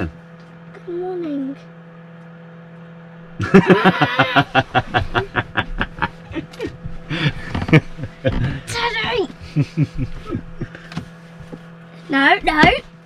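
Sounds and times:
laughter and giggling: 0:03.4 - 0:08.7, 0:09.4 - 0:10.8.

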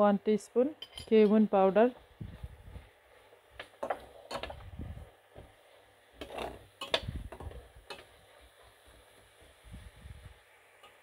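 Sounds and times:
metal spatula scraping frying pan: 0:06.2 - 0:07.0.

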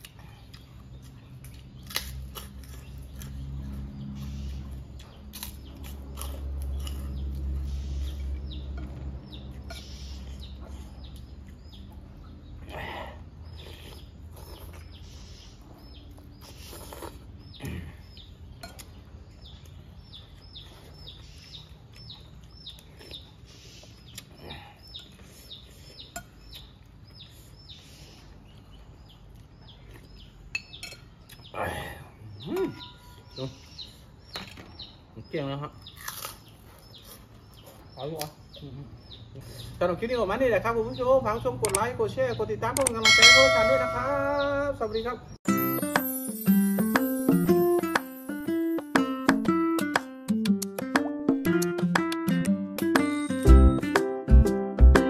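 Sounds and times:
crunching fried snacks: 0:00.0 - 0:03.8, 0:05.0 - 0:07.6, 0:35.8 - 0:38.3
bird chirping: 0:00.0 - 0:50.5
spoon clinking against bowl: 0:43.0 - 0:44.3.

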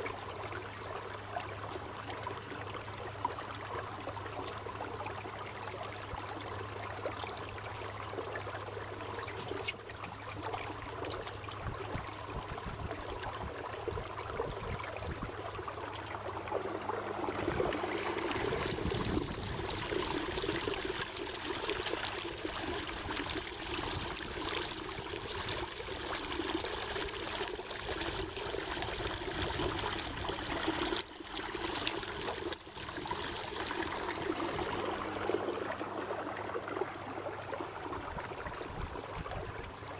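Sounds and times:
propeller wash churning water: 0:15.8 - 0:37.7.

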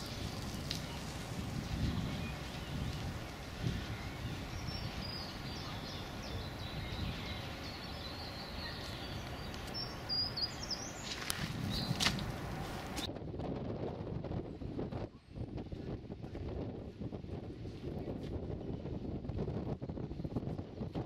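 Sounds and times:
songbirds chirping: 0:00.0 - 0:13.1.

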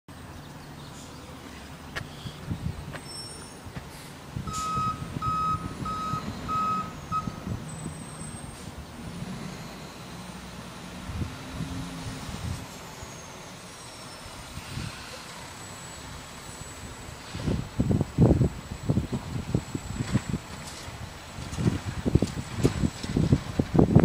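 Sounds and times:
truck engine running: 0:00.1 - 0:24.0
truck backup alarm beeping: 0:04.4 - 0:10.8, 0:12.7 - 0:23.3.

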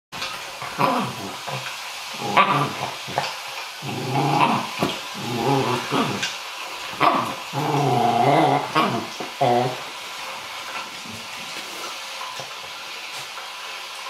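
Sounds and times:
dog growling: 0:00.6 - 0:10.0.

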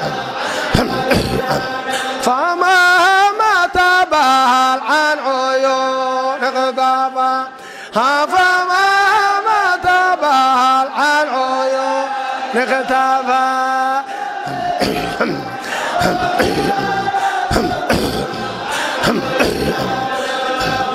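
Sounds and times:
group of voices chanting: 0:00.0 - 0:03.9, 0:10.9 - 0:20.9
solo voice chanting: 0:00.0 - 0:20.9.

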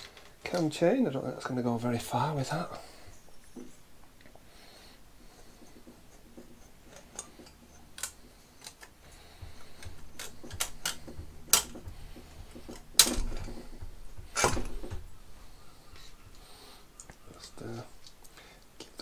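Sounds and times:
sharp knocks: 0:09.3 - 0:15.2.

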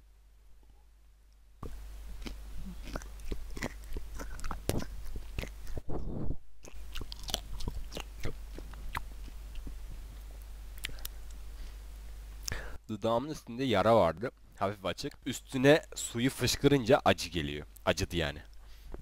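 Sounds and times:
chewing and crunching: 0:01.6 - 0:11.4.

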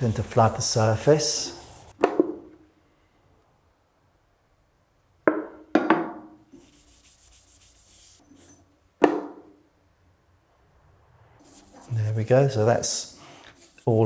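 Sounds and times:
cloth wiping wood: 0:00.0 - 0:02.0, 0:06.6 - 0:08.5, 0:11.4 - 0:12.2, 0:13.1 - 0:14.0.

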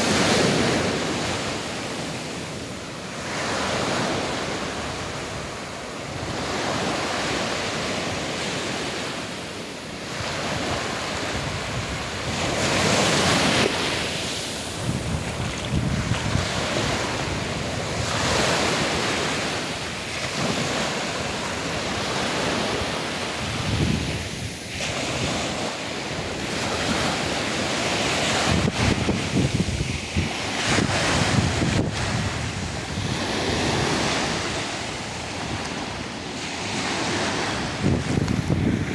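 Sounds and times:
small waves breaking on sand: 0:00.0 - 0:38.9
wind buffeting microphone: 0:10.1 - 0:19.6, 0:21.6 - 0:38.9.

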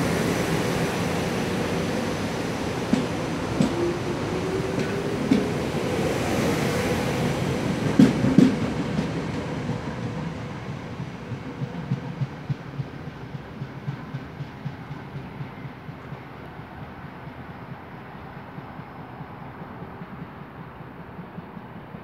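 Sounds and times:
heavy train clunks: 0:00.0 - 0:22.0
train wheels clattering: 0:00.1 - 0:16.3.

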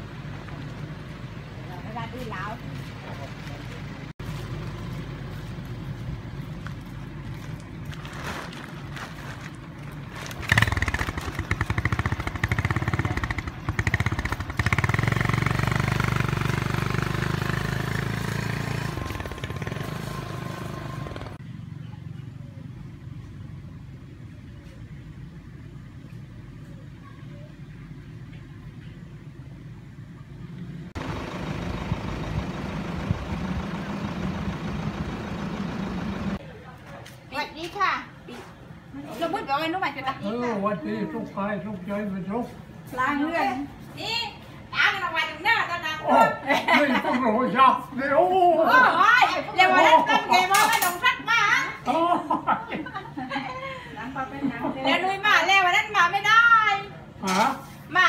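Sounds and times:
motorcycle engine idling and revving: 0:00.0 - 0:08.0, 0:09.9 - 0:36.5.

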